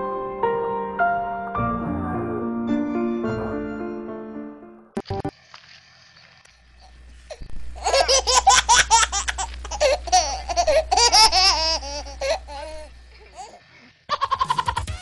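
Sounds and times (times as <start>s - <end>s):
person laughing hard: 7.8s - 12.8s, 14.1s - 15.0s.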